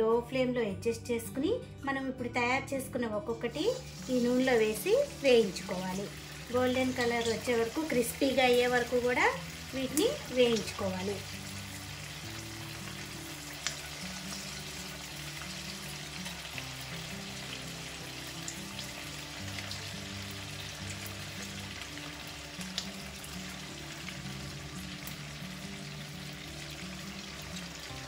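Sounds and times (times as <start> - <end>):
soft background music: 0.0 - 28.0
food deep-frying in hot oil: 3.5 - 28.0
oil popping: 9.9 - 17.3.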